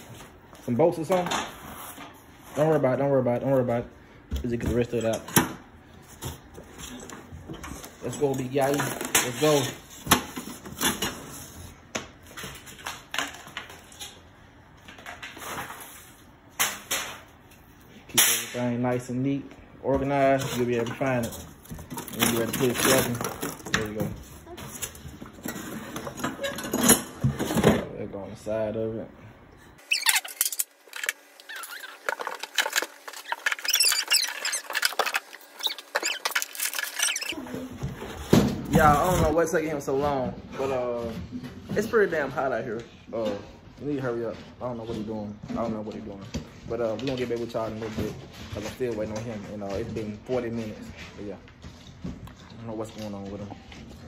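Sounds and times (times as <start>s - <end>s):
cardboard rustling and scraping: 20.3s - 26.4s, 29.8s - 39.4s.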